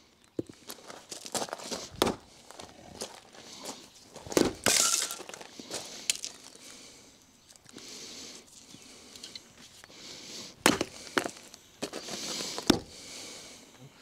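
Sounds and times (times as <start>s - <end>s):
axe striking log: 2.0s - 2.2s, 4.4s - 5.2s, 10.6s - 11.3s, 12.6s - 12.9s.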